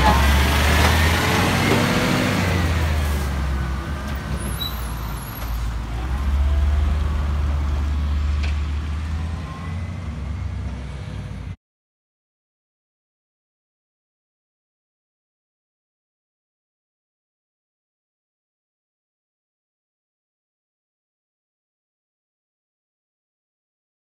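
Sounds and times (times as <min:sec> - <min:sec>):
garbage truck diesel engine: 0:00.0 - 0:11.6.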